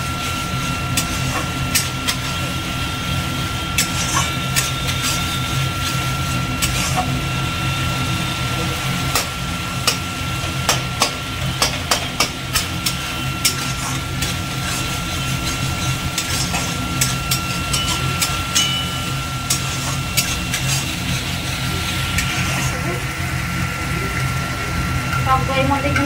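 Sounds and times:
spice paste frying in oil: 0.0 - 26.0
steady low hum: 0.0 - 26.0
metal spatula scraping a pan: 12.8 - 21.6.

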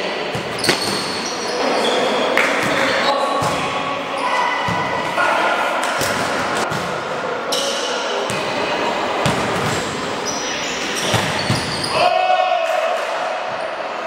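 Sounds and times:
players' voices: 0.0 - 14.0
footfalls in a sports hall: 0.2 - 1.6.

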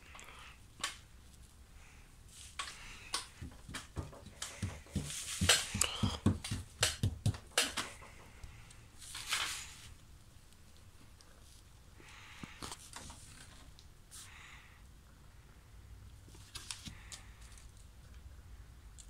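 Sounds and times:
short rustle: 2.3 - 5.8.

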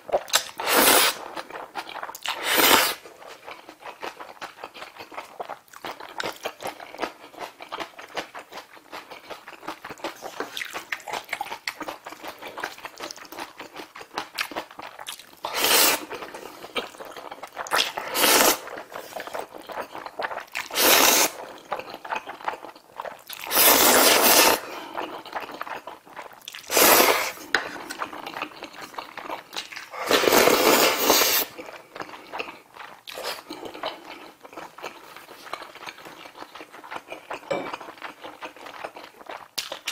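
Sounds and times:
slurping noodles: 0.6 - 1.4, 2.2 - 3.0, 15.4 - 17.0, 17.6 - 20.0, 20.6 - 21.6, 23.3 - 25.9, 26.5 - 28.6, 29.9 - 31.8
wet chewing and lip smacking: 3.0 - 20.8, 21.4 - 24.0, 24.9 - 26.8, 27.5 - 30.0, 31.3 - 39.9.

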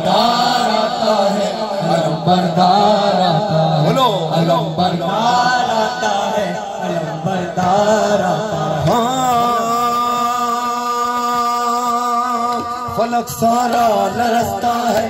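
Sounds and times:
person singing a lament: 0.0 - 15.0.

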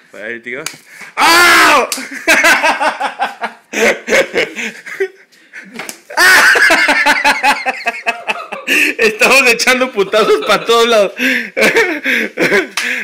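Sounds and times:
people laughing: 1.9 - 12.8
shriek of laughter: 6.1 - 8.9.

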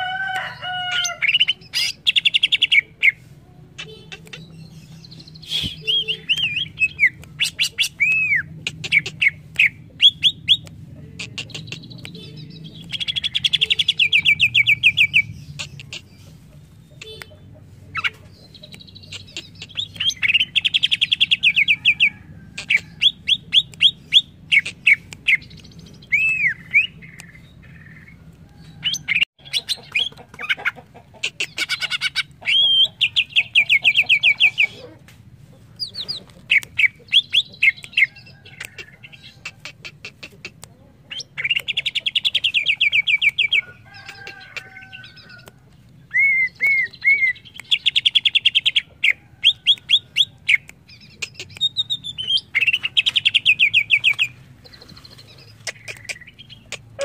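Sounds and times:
bird singing chips and whistles: 46.1 - 48.2.

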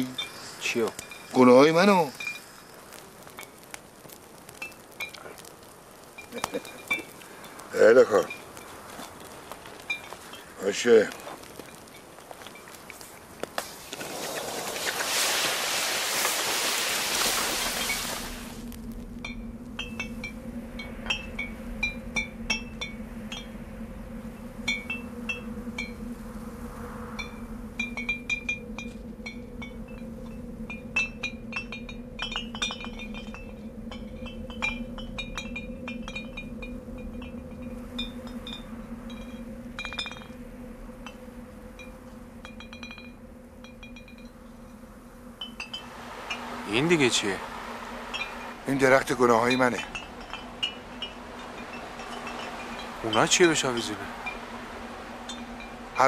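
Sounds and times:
low steady hum: 0.0 - 56.0
rushing noise: 13.7 - 56.0
low steady drone: 14.0 - 56.0.

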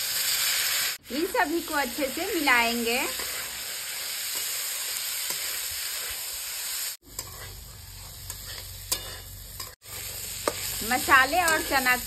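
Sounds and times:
food sizzling in a pan: 0.0 - 12.0
spatula scraping a metal pan: 7.0 - 12.0.

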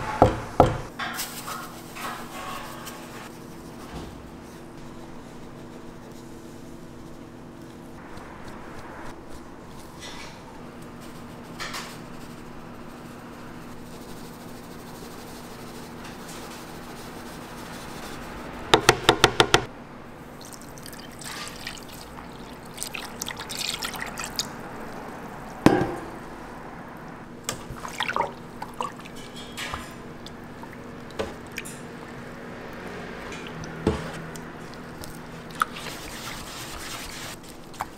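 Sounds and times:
liquid pouring into metal pan: 20.3 - 24.9.

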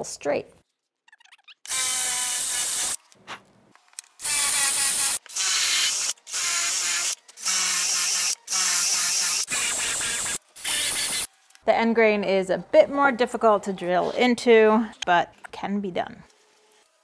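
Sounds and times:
cordless drill drilling into wood: 1.7 - 3.0, 4.2 - 11.3.

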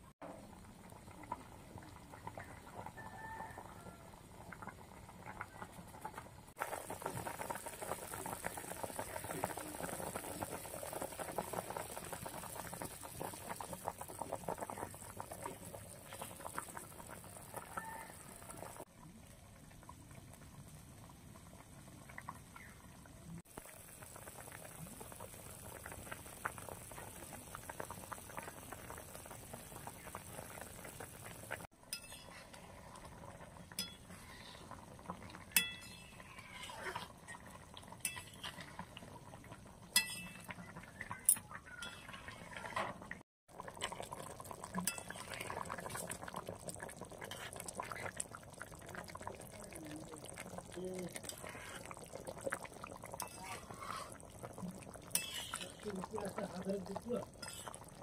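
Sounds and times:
curry bubbling at a boil: 0.0 - 58.0
spatula clinking against wok: 31.9 - 32.4, 35.6 - 36.1, 40.0 - 40.5, 55.1 - 55.7.

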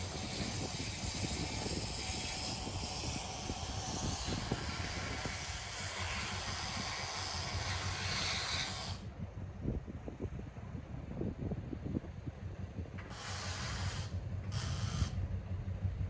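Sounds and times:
hiss: 0.0 - 9.1, 13.0 - 15.4
diesel locomotive rumbling: 0.0 - 16.0.

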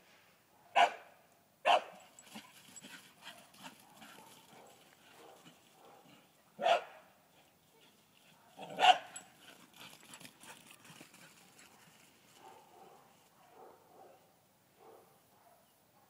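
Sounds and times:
dog barking: 0.6 - 2.1, 3.8 - 7.2, 8.4 - 9.3, 11.7 - 16.0.

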